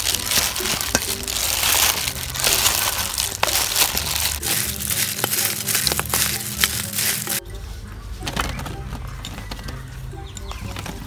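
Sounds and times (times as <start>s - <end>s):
plastic glove crinkling: 0.0s - 7.4s
wet squelching: 0.0s - 7.4s.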